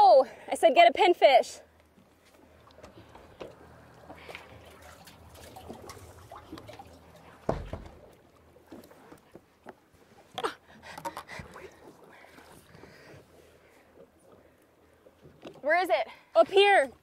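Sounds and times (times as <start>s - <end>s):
low thump: 7.5s - 8.0s.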